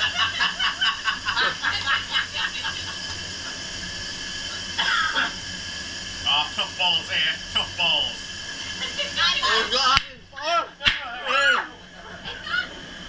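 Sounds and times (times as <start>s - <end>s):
people giggling: 0.0s - 3.2s
steady hiss: 0.0s - 13.0s
short high laugh: 1.1s - 1.8s.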